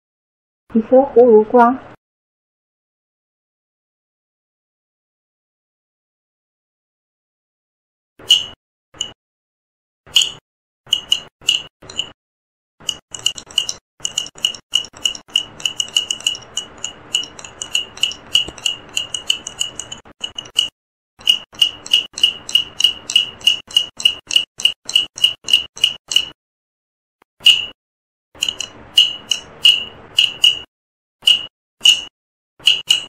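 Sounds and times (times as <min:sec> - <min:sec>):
stick tapping a gourd: 0:12.8 - 0:26.4, 0:28.4 - 0:33.0.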